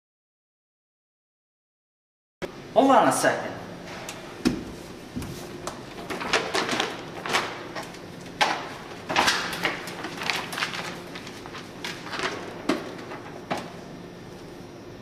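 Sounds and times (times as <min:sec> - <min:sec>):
pages of paper rustling: 0:05.2 - 0:13.8.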